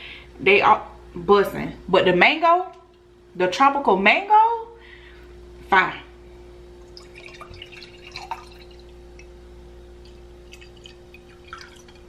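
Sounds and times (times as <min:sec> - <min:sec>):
drink trickling into a glass: 0:06.8 - 0:09.3, 0:10.0 - 0:12.0.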